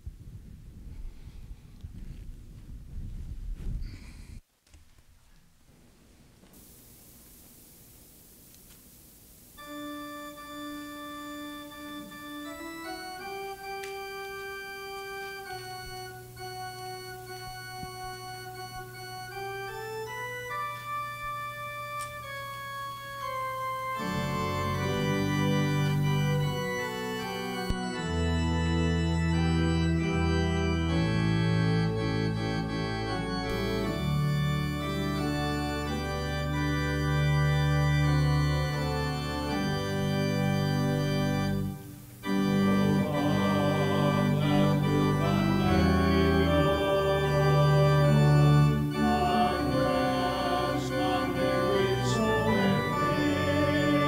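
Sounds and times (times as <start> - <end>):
church organ playing a hymn: 9.6 - 54.0
choir singing: 24.0 - 27.7, 42.3 - 54.0.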